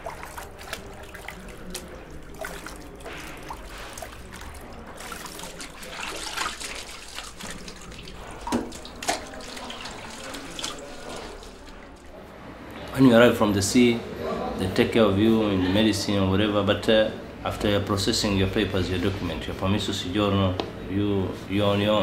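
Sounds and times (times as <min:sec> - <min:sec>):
drips: 0:00.0 - 0:12.2
water trickling into plastic bucket: 0:00.0 - 0:12.2.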